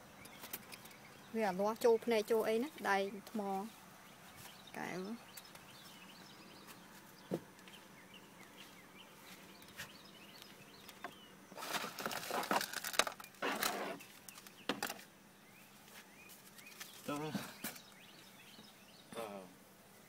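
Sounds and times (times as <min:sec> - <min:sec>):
rustling and crackling: 0:08.6 - 0:18.0.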